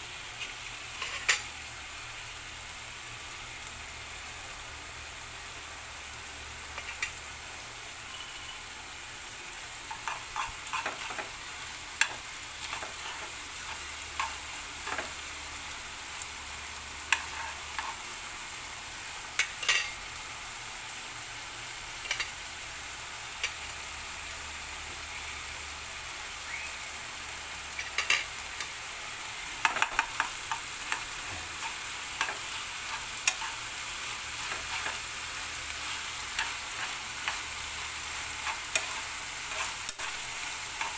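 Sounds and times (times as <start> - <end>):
food sizzling in a frying pan: 0.0 - 40.9
spatula stirring in pan: 0.4 - 1.5, 9.6 - 18.5, 27.7 - 40.9.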